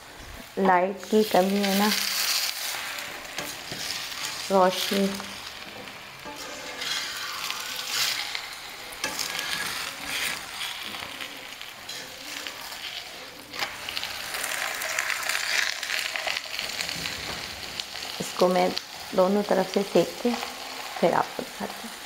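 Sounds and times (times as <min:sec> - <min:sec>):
flatbread sizzling in oil: 0:00.0 - 0:22.0
spatula scraping a pan: 0:01.2 - 0:17.4.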